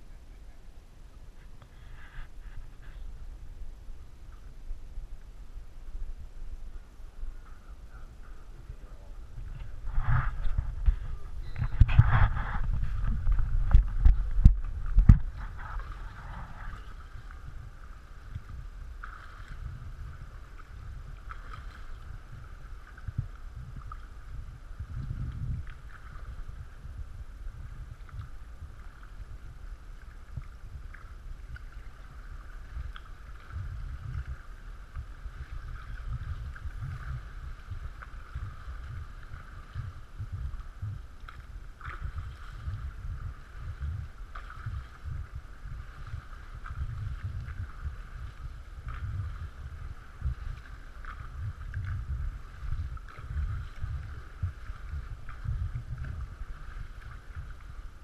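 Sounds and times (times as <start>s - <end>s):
steady low rumble: 0.0s - 58.0s
water lapping and splashing: 1.4s - 58.0s
small clicks and drips: 20.4s - 26.6s, 27.9s - 58.0s.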